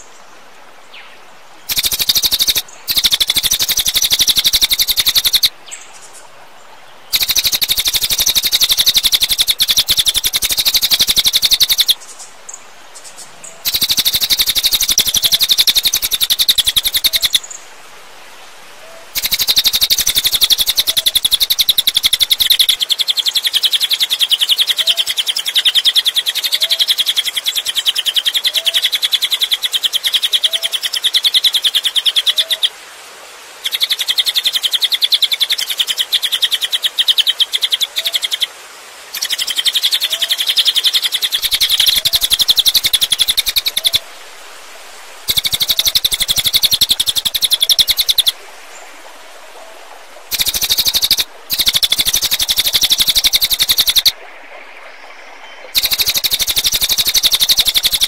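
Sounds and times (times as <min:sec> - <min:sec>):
soft lower chirps: 0:41.4 - 0:44.2.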